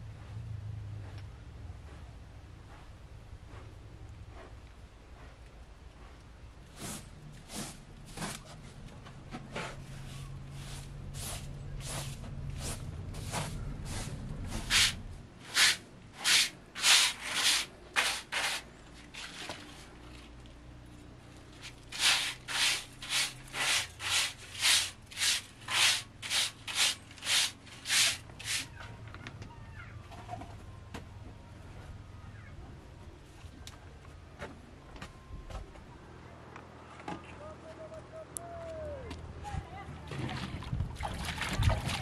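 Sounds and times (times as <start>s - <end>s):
hand broom sweeping carpet: 6.0s - 8.8s, 9.5s - 20.0s, 21.6s - 28.9s.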